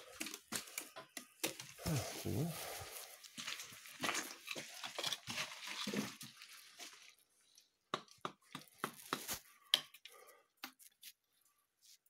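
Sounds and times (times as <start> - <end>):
clicks and knocks on stone: 7.9 - 10.8.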